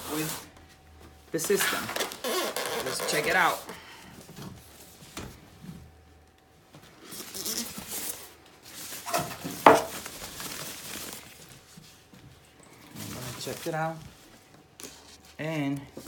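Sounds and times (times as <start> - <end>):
plastic bag rustling: 1.4 - 5.1, 6.7 - 16.0
styrofoam pieces being handled: 7.2 - 11.7
foam piece knocking on wooden floor: 9.6 - 9.9.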